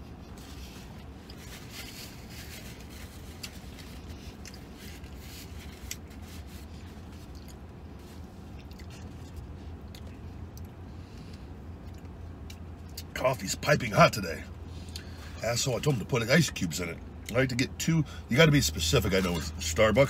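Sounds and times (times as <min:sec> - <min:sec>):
man chewing food: 0:00.0 - 0:13.1
crackles and clicks of food handling: 0:00.0 - 0:18.5
steady low hum: 0:00.0 - 0:20.0.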